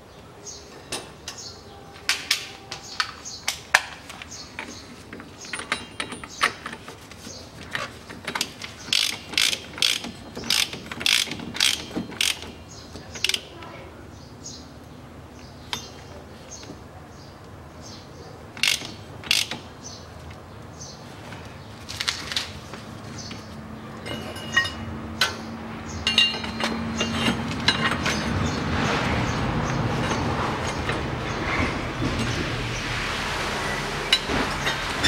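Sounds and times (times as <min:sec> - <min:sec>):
hand ratchet clicking: 0:08.3 - 0:12.6, 0:18.6 - 0:19.6.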